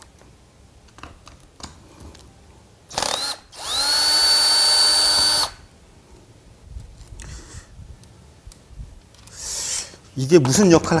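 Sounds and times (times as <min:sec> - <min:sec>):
cordless drill whining: 0:02.9 - 0:05.6.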